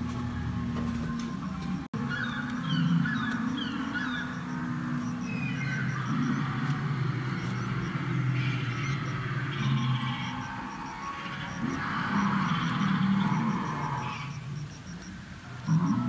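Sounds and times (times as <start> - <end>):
dinosaur growls through loudspeaker: 2.7 - 14.4.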